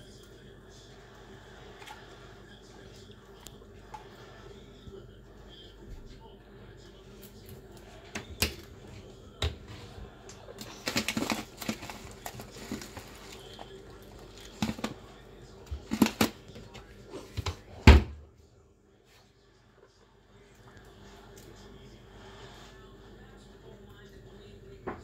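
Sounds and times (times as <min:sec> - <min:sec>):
guinea pigs chewing hay: 0:00.0 - 0:17.3.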